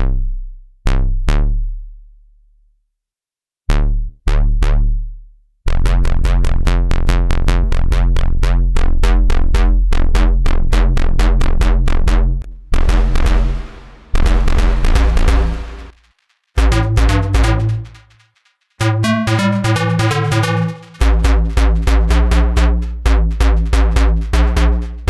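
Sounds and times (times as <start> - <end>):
synth bass notes: 3.7 - 25.0
hiss-like effects wash: 12.8 - 16.2.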